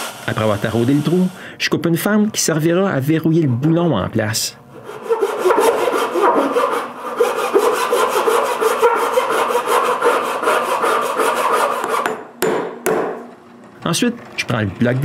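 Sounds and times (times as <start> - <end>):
hand saw cutting plywood: 4.8 - 12.2.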